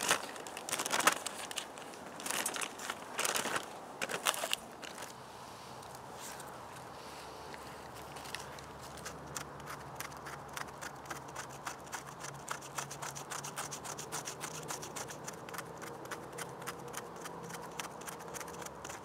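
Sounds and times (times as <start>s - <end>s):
knife scraping bark: 8.0s - 19.0s.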